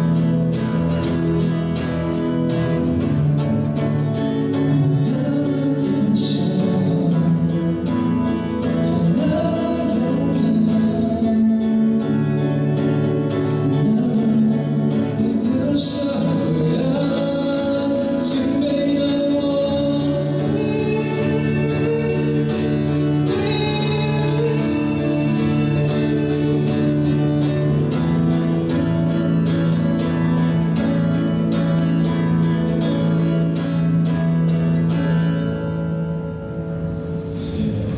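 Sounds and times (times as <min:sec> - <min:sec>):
acoustic guitar strumming: 0:00.0 - 0:37.9
man singing: 0:02.7 - 0:31.9, 0:37.3 - 0:37.9.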